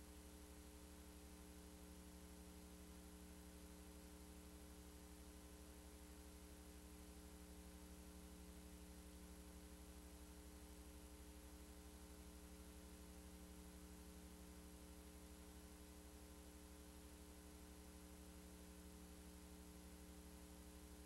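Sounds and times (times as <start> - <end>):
faint electrical hum with hiss: 0.0 - 21.0.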